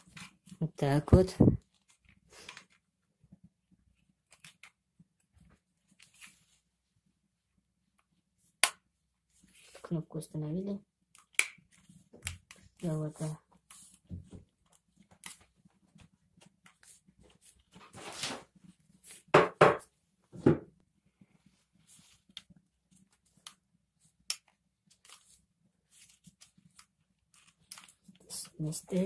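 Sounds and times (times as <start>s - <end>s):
small plastic clicks and rustles: 1.6s - 6.5s, 22.2s - 29.0s.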